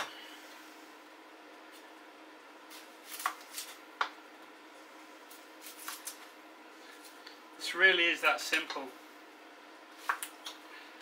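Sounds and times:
onion skin crackling: 2.6s - 4.0s, 5.2s - 7.4s.

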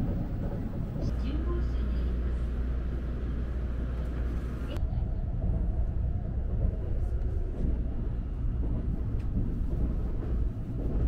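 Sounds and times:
train running low rumble: 0.0s - 11.0s.

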